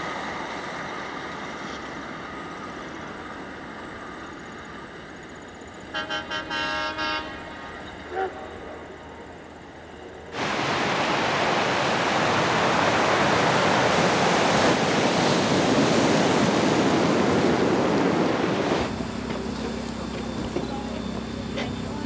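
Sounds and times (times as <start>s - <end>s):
surf breaking on shingle beach: 10.4s - 18.9s.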